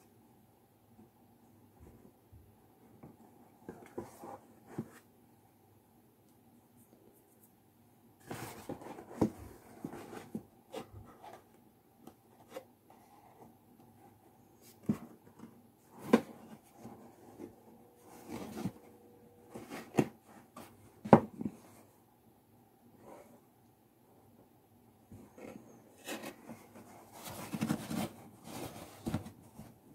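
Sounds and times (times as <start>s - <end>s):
card rustling and crinkling: 26.0s - 29.8s.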